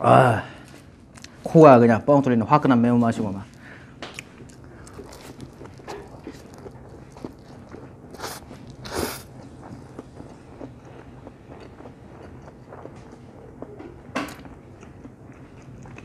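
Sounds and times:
quiet chewing: 0.6s - 1.4s, 3.3s - 16.0s
person slurping noodles: 4.6s - 12.1s.

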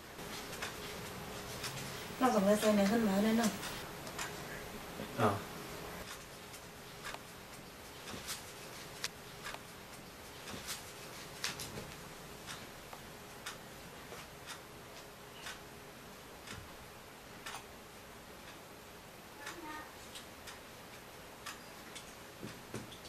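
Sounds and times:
low steady hum: 0.0s - 6.1s
clock ticking: 1.6s - 4.3s, 12.4s - 13.7s, 17.4s - 17.7s, 19.4s - 19.7s.

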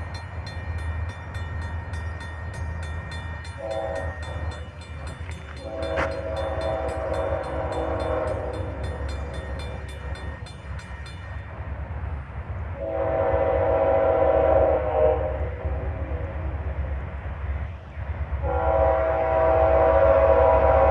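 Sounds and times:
crossing bell ringing: 0.0s - 12.1s
locomotive air horn blasts: 3.6s - 4.6s, 5.6s - 8.8s, 12.8s - 16.3s, 18.4s - 20.9s.

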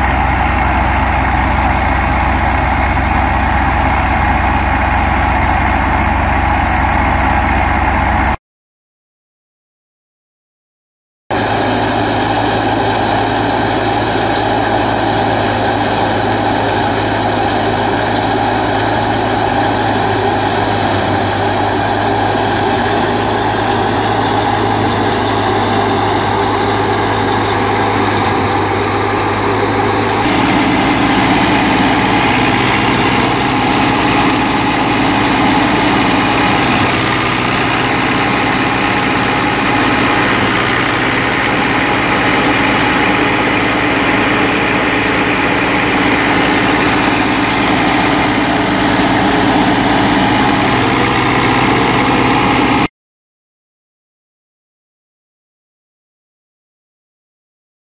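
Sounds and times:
tractor diesel engine running: 0.0s - 8.4s, 11.3s - 52.9s.

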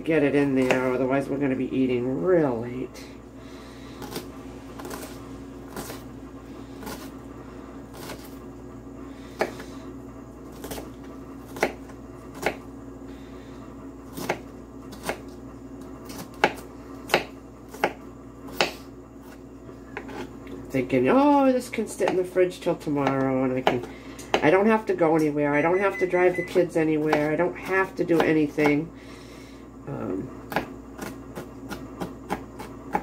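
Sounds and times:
steady low hum: 0.0s - 33.0s
knife chopping on cutting board: 4.0s - 6.0s, 9.4s - 9.6s, 11.5s - 12.6s, 14.1s - 15.3s, 16.0s - 19.4s, 23.0s - 24.6s, 26.5s - 28.8s, 30.5s - 33.0s.

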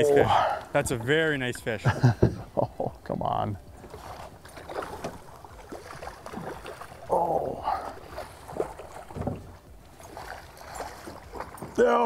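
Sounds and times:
water sloshing: 0.0s - 12.0s
fish thrashing and splashing: 3.7s - 11.9s.

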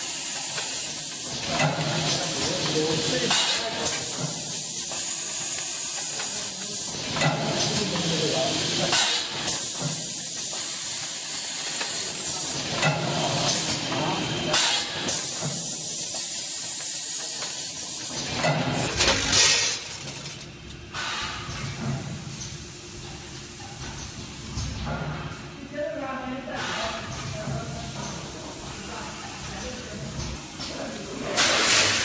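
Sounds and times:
steady pneumatic air hiss: 0.0s - 7.8s, 8.5s - 18.2s, 20.9s - 24.8s, 26.6s - 27.3s, 30.2s - 32.0s
bursts of air and mechanism: 31.3s - 32.0s.

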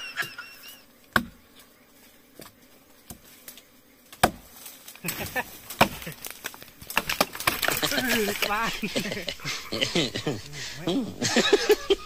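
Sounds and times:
machete chopping tree trunk: 1.1s - 1.4s, 4.1s - 8.6s.

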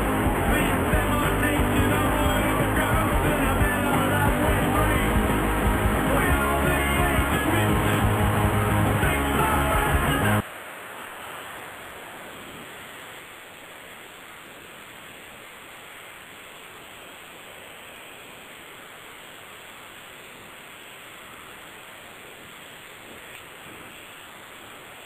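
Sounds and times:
line noise hiss: 0.0s - 25.0s.

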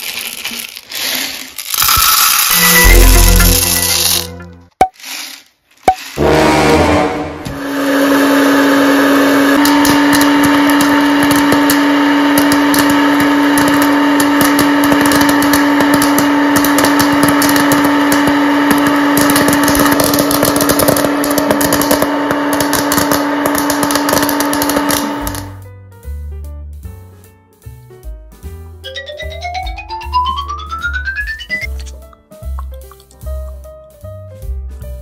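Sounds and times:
popcorn kernels popping: 0.0s - 6.2s, 9.6s - 25.6s
popcorn maker fan motor hum: 7.6s - 25.6s.

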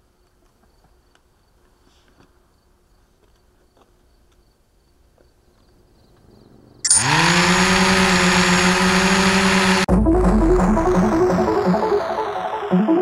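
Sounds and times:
faint crickets: 0.0s - 6.9s
drone propellers buzzing whine: 6.8s - 13.0s
electronic music with heavy bass: 9.8s - 13.0s.

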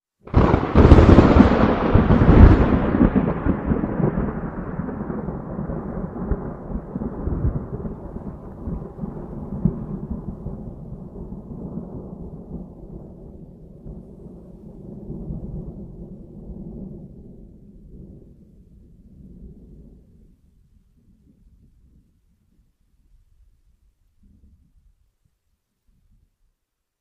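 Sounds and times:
thunder crash and rumble: 0.3s - 18.3s.

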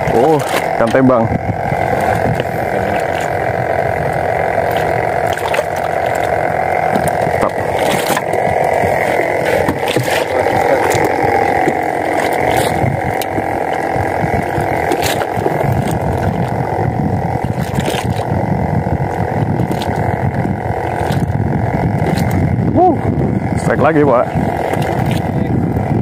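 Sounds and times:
boat engine running: 0.0s - 26.0s
water noise: 0.0s - 26.0s
wind: 0.0s - 26.0s.

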